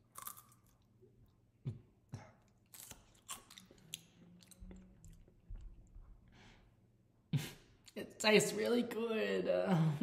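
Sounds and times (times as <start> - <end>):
person chewing crunchy chip: 0.0 - 0.9, 2.6 - 5.2.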